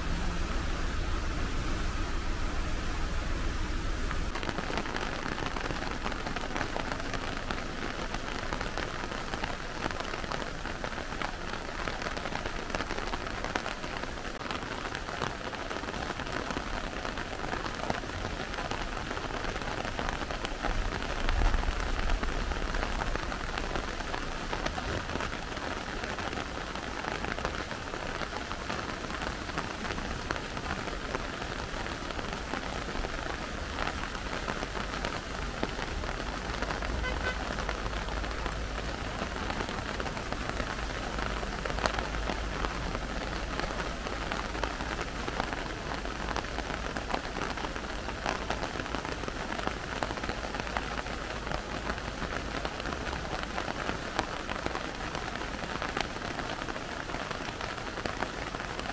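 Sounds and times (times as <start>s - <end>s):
low rumble: 0.0s - 4.4s
rushing water hiss: 0.0s - 52.5s.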